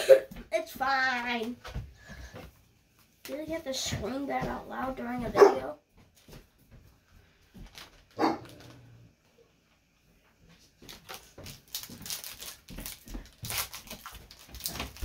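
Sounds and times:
dog barking: 5.4s - 5.7s, 8.2s - 8.6s
trading cards rustling: 10.9s - 15.0s.

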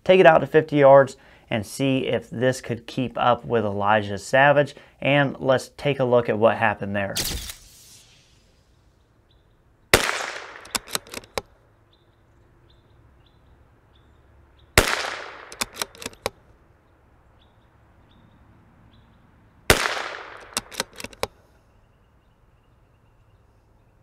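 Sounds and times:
rifle shots: 7.2s - 8.0s, 9.9s - 11.4s, 14.8s - 16.3s, 19.7s - 21.3s
rifle bolt clicks: 10.0s - 11.5s, 14.8s - 16.4s, 19.7s - 21.4s.

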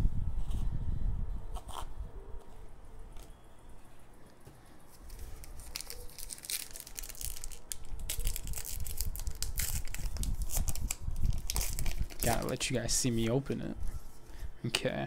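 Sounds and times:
foil wrapper crinkling and tearing: 4.9s - 13.0s.

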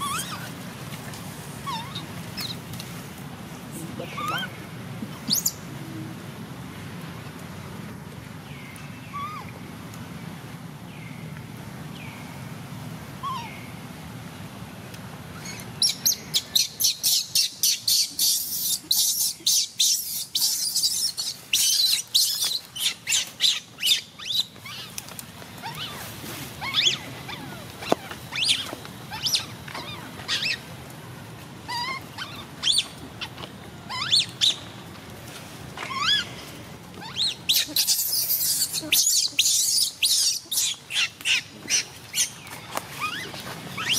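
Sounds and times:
baby monkey screaming: 0.0s - 0.5s, 1.6s - 2.5s, 4.1s - 4.6s, 9.1s - 9.5s, 13.2s - 13.6s, 15.4s - 24.9s, 25.6s - 30.6s, 31.7s - 34.6s, 35.8s - 36.3s, 37.0s - 42.4s, 43.0s - 43.9s.

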